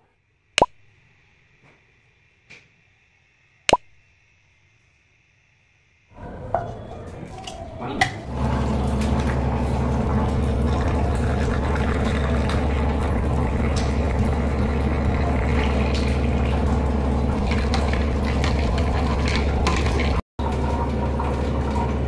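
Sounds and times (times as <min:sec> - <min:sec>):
liquid pouring into a tumbler: 0:08.3 - 0:22.0.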